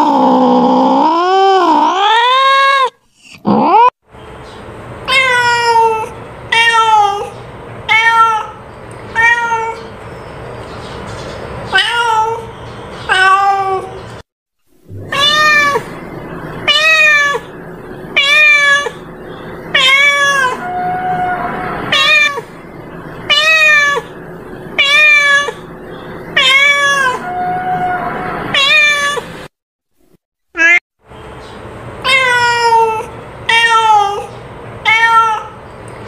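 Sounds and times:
cat meowing: 5.1 - 9.9, 11.7 - 12.5, 13.1 - 14.0, 14.9 - 16.0, 16.6 - 17.5, 18.2 - 19.0, 19.7 - 22.5, 23.3 - 24.1, 24.8 - 25.6, 26.4 - 29.3, 30.6 - 30.8, 32.0 - 35.6.

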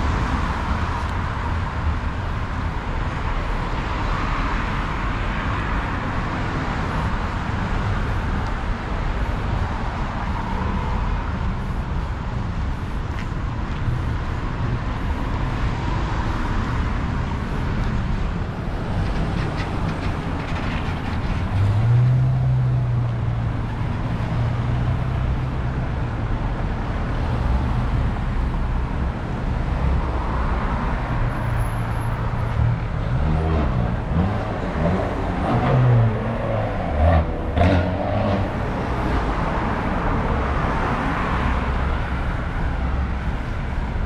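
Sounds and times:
heavy vehicle engine: 0.0 - 44.0
vehicles passing close by: 0.0 - 44.0.

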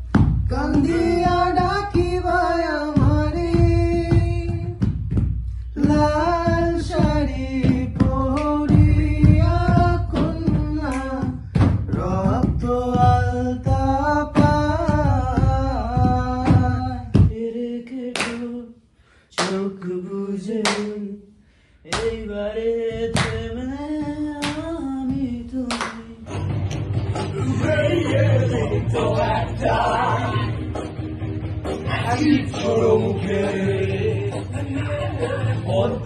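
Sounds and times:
low rhythmic thumps: 0.0 - 17.4, 21.9 - 36.0
man singing unaccompanied: 0.5 - 4.8, 5.8 - 18.8, 19.4 - 21.3, 21.9 - 26.3, 27.3 - 30.4, 31.8 - 36.0
sharp claps or slaps: 7.1 - 12.4, 18.1 - 18.6, 19.4 - 19.8, 20.6 - 21.0, 21.9 - 22.2, 23.0 - 27.4, 30.7 - 31.9.

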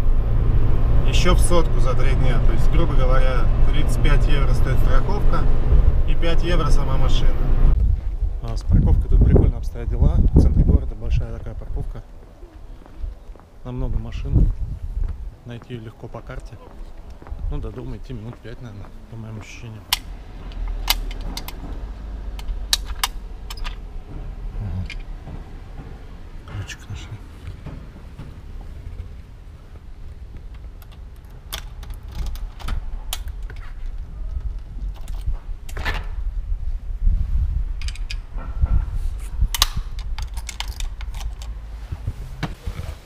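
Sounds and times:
low rumble: 0.0 - 15.5, 20.0 - 42.5
lock box clicking: 19.9 - 21.6, 22.4 - 23.8, 30.8 - 33.7, 37.8 - 38.2, 39.5 - 41.6
key rattling in door lock: 30.8 - 36.0, 39.8 - 41.6.

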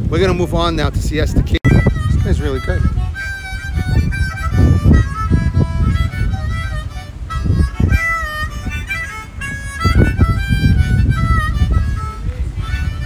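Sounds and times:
wind buffeting microphone: 0.0 - 13.0
harmonica melody: 1.6 - 13.0.

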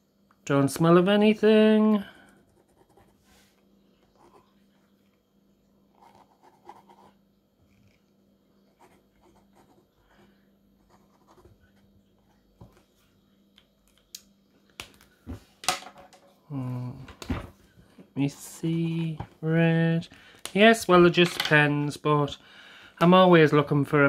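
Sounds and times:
pen scratching on paper: 5.9 - 7.2.

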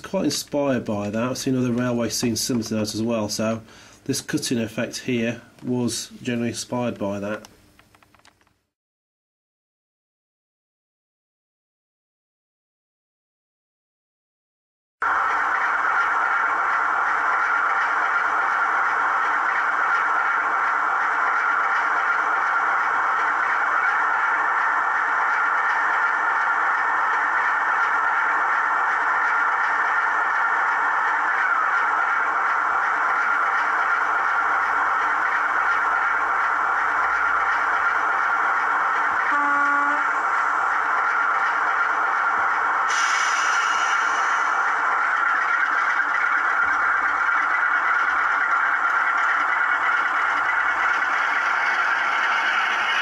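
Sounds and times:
model train running on track: 0.0 - 7.5, 15.0 - 53.0
diesel engine sound effect: 15.0 - 53.0.

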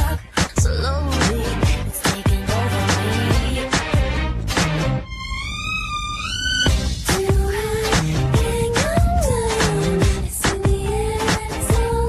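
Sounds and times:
held bass line: 0.0 - 12.0.

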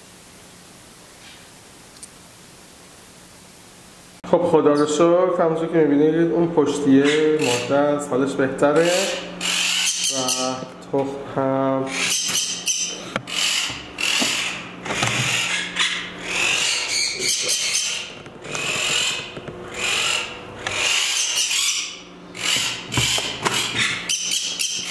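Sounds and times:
parrots squawking harshly: 7.0 - 7.8, 8.8 - 10.6, 11.8 - 24.9.

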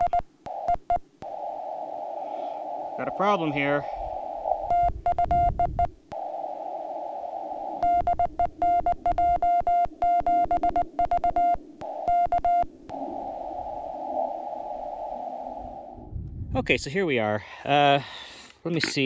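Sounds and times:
morse code beeps: 0.0 - 1.0, 4.7 - 6.0, 7.8 - 12.7
radio band hiss: 0.0 - 4.7.

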